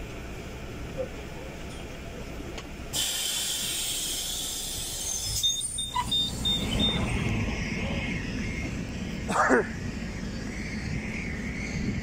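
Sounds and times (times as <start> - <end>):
pneumatic bus doors hissing: 2.9 - 7.0
short high beeps: 5.4 - 7.1.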